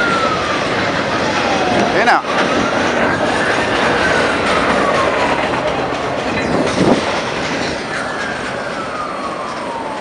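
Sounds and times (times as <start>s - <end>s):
freight train rumbling past: 0.0s - 10.0s
train clunk: 0.0s - 10.0s
wheels clattering over rail joints: 0.0s - 10.0s
wheel squeal: 2.6s - 9.9s.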